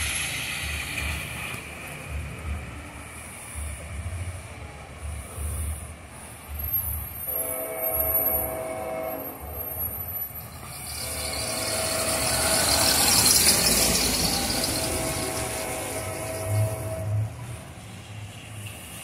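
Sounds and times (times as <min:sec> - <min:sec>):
distant locomotive air horn blasts: 0:07.2 - 0:10.1, 0:10.8 - 0:17.5.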